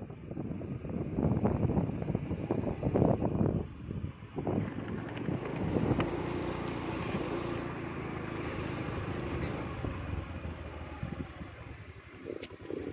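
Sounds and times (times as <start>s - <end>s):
wind on microphone: 0.0s - 7.6s, 8.9s - 12.9s
vehicle engine hum and rumble: 0.0s - 12.9s.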